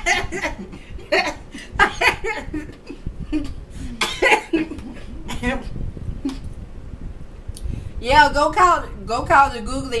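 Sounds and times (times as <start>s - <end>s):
woman laughing: 0.0s - 3.6s, 4.2s - 5.6s.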